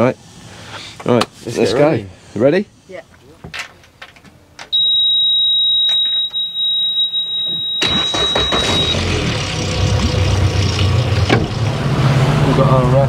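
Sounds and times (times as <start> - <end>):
high-pitched warning beep: 4.7 - 9.1
outboard motor cranking and idling: 7.8 - 12.2.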